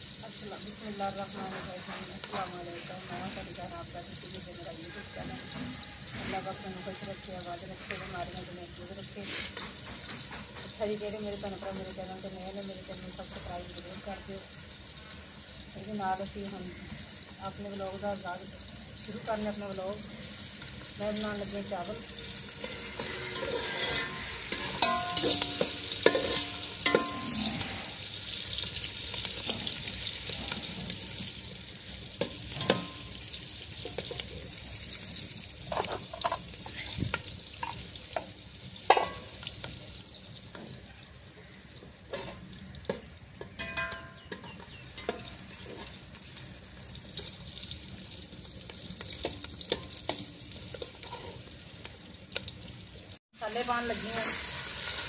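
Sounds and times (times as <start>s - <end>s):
onions sizzling in a pot: 0.0s - 55.0s
metal skimmer scraping a pot: 22.5s - 28.1s, 43.6s - 46.0s.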